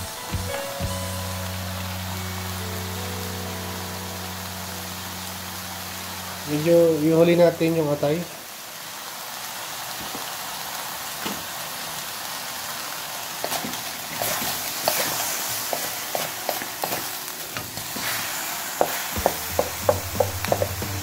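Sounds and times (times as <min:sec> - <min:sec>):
chicken sizzling in a wok: 0:00.0 - 0:21.0
spatula scraping a wok: 0:13.4 - 0:17.1.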